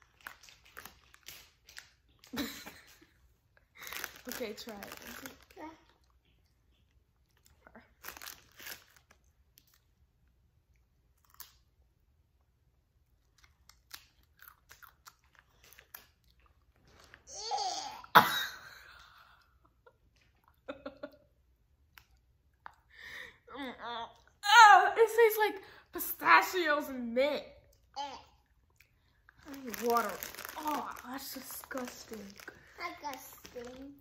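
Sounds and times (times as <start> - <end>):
potato crisps crunching: 0.0 - 2.3, 3.8 - 5.6, 8.0 - 9.8, 13.4 - 16.5, 29.3 - 34.0.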